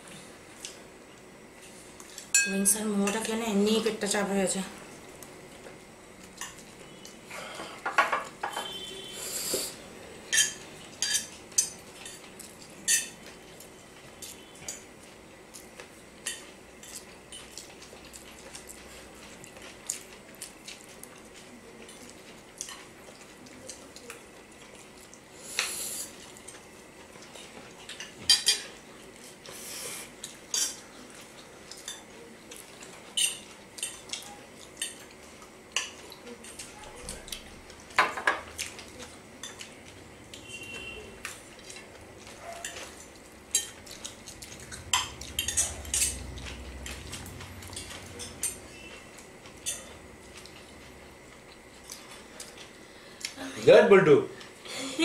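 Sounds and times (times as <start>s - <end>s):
cutlery clinking on plates: 7.6s - 8.8s, 10.3s - 12.3s, 27.9s - 28.8s, 44.9s - 47.1s.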